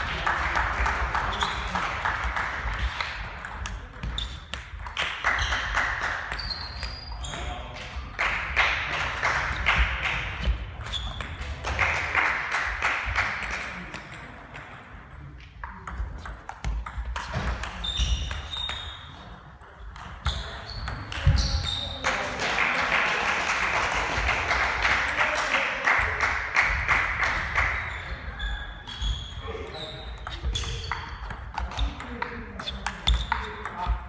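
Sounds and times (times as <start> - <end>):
players talking and calling: 0.0 - 34.0
table tennis balls clicking: 0.8 - 7.5, 9.4 - 11.7, 13.4 - 21.9, 30.0 - 34.0.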